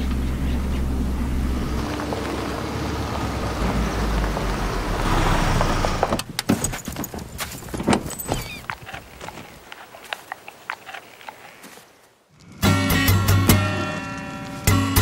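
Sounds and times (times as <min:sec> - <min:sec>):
car engine hum: 0:00.0 - 0:06.5
tyres on dirt track: 0:00.0 - 0:15.0.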